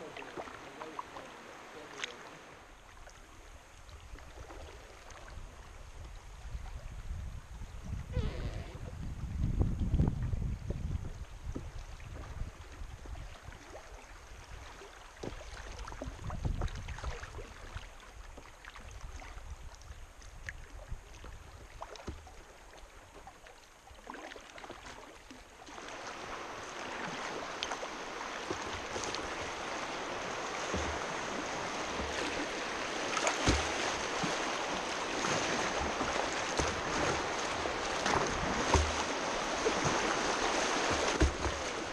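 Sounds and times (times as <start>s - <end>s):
paddle splashes: 0.0s - 7.1s, 10.3s - 41.9s
river water flowing: 0.0s - 7.1s, 11.1s - 41.9s
whitewater rushing: 25.7s - 41.9s.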